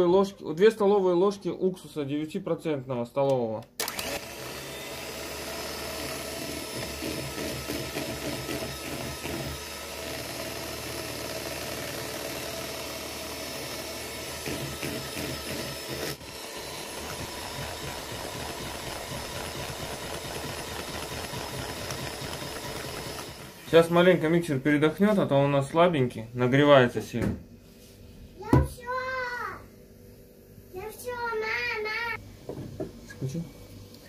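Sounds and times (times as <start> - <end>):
electric hand mixer whisking: 3.8 - 24.4.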